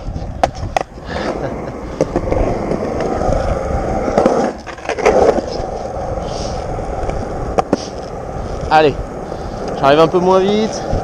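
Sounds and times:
skateboard wheels rolling on concrete: 0.0 - 11.0
skateboard clacks: 0.2 - 5.7, 6.9 - 8.1.

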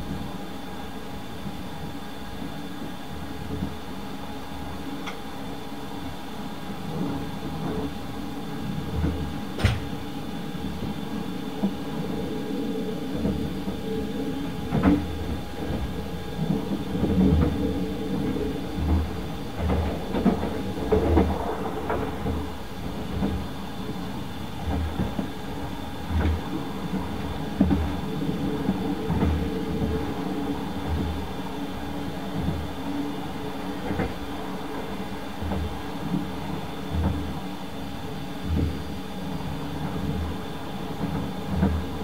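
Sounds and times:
train car rumble and hum: 0.0 - 42.0
wheels thumping over track: 9.6 - 10.0.

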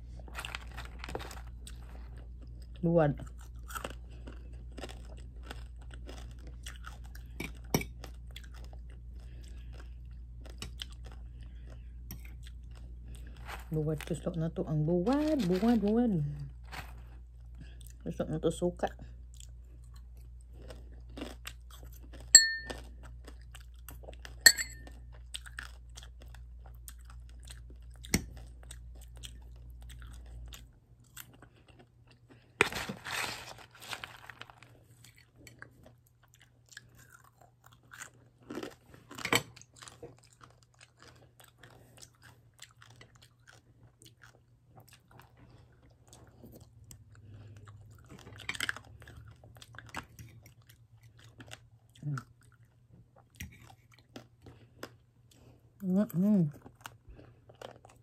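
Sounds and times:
chewing and crunching: 0.0 - 58.0
low background hum: 0.0 - 58.0
sharp clinks with ring: 22.4 - 22.7, 24.5 - 24.8.

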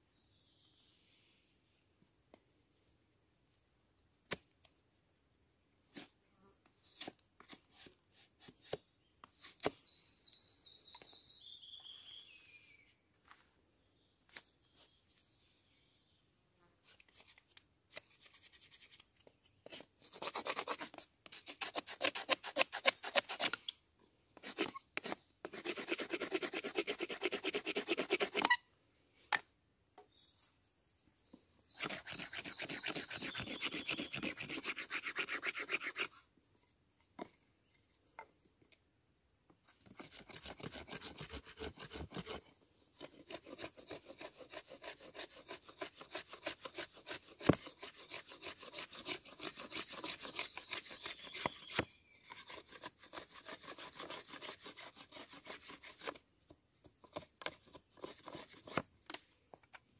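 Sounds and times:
rasping strokes on wood: 19.6 - 23.6, 24.4 - 28.6, 31.8 - 36.2, 39.8 - 56.2, 57.1 - 58.8.

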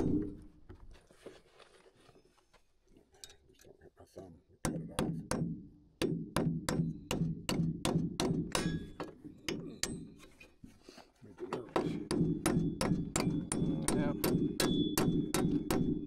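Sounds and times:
hammer driving nails: 0.0 - 0.4, 4.7 - 10.3, 11.6 - 16.0.

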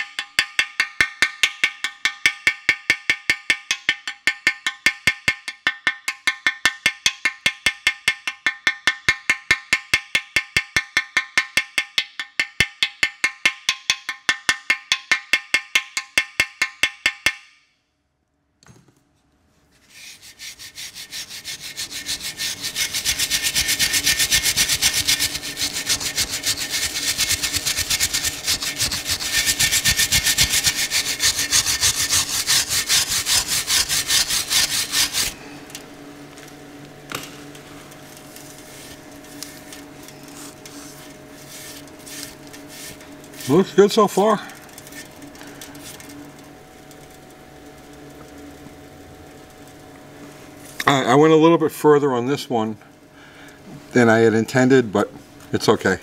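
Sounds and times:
wire brush scrubbing metal: 19.8 - 35.4, 38.3 - 46.3.

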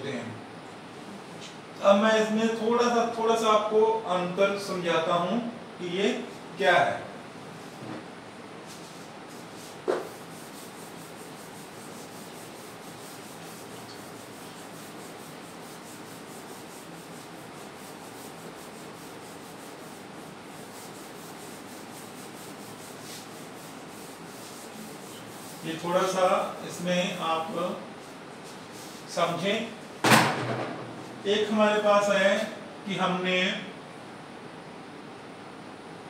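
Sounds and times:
eraser rubbing on whiteboard: 8.7 - 29.4.

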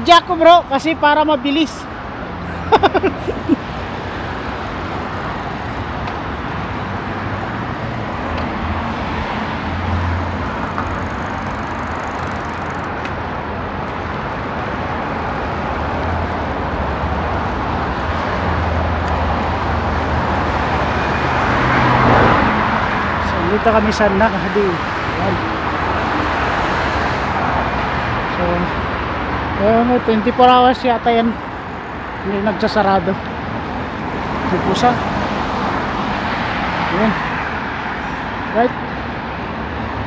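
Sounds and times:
bicycle tyres rolling on tarmac: 4.7 - 14.7.

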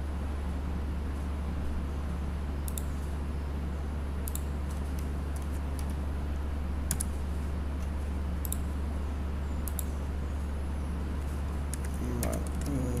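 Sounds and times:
steady low hum: 0.0 - 13.0
keyboard and mouse clicks: 2.6 - 3.0, 4.2 - 6.0, 6.9 - 7.2, 7.8 - 8.7, 9.6 - 9.9, 11.7 - 12.8.

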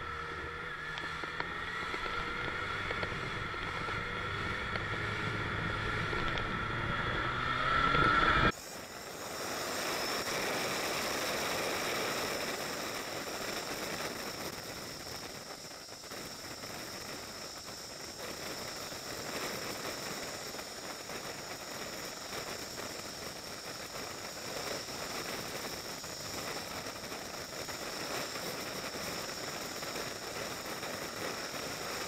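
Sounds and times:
motorcycle engine accelerating: 0.0 - 14.4
wind noise at riding speed: 0.0 - 32.0.

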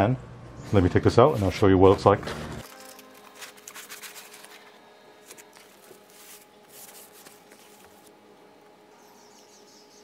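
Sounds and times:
packaging rustling and scraping: 2.6 - 8.2.

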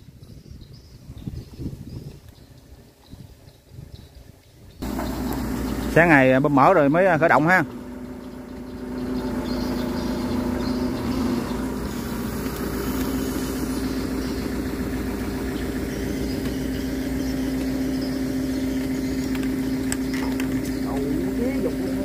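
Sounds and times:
engine idling: 4.8 - 22.0.

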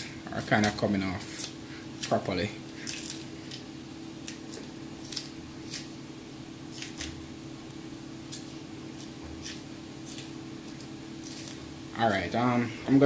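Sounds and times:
banana peel snapping and tearing: 2.8 - 5.9, 6.7 - 7.2.

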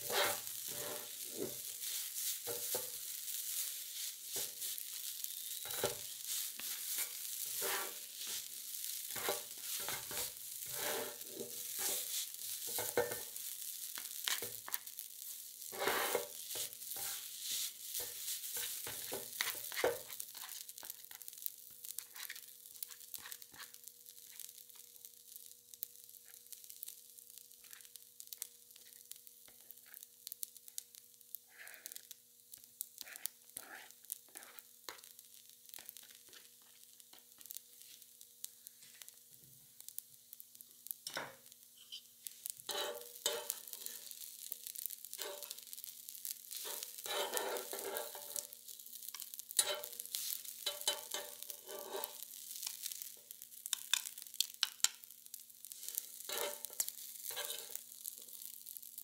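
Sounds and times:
spatulas scraping and tapping: 0.0 - 13.4, 14.0 - 14.9, 15.7 - 21.2, 22.0 - 24.4, 33.0 - 35.1, 42.7 - 44.2, 45.1 - 45.7, 46.5 - 55.0, 55.9 - 57.8
food sizzling on a griddle: 0.0 - 59.0.

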